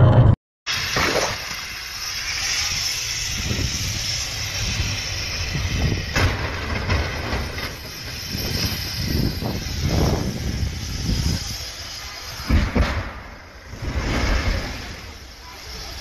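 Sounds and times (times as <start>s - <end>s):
vehicle noise: 0.0s - 16.0s
wind buffeting microphone: 3.1s - 11.8s
vehicle crash: 5.9s - 9.3s, 12.3s - 16.0s.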